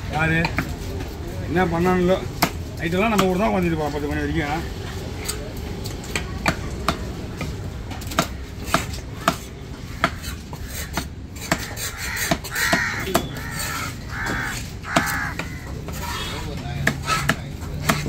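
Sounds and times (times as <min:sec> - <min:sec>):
knife chopping on wooden block: 0:08.1 - 0:13.3, 0:14.3 - 0:15.6, 0:16.8 - 0:18.0
crows cawing: 0:09.2 - 0:16.4.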